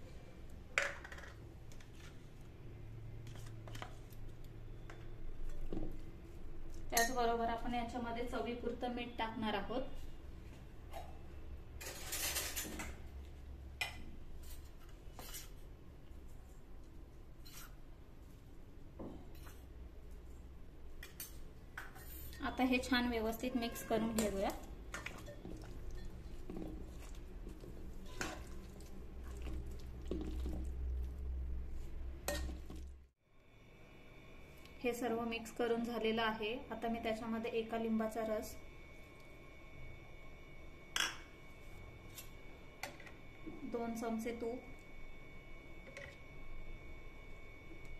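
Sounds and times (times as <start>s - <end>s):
steel utensils scraping: 11.8s - 12.8s, 14.4s - 15.6s, 23.5s - 28.7s
meat being mixed by hand: 22.6s - 33.0s.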